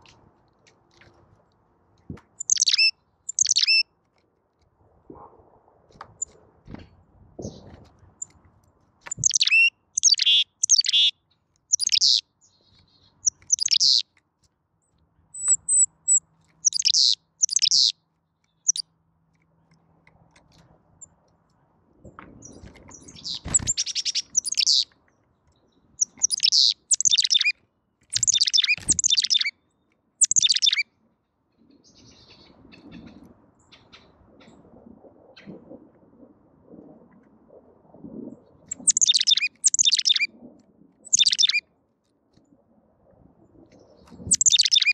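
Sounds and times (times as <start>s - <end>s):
chickadee calling: 2.4s - 3.8s, 9.1s - 11.1s, 11.7s - 14.1s, 15.4s - 18.0s, 23.1s - 24.9s, 26.0s - 27.5s, 28.1s - 29.5s, 30.2s - 30.8s, 38.7s - 40.3s, 41.1s - 41.6s, 44.2s - 44.9s.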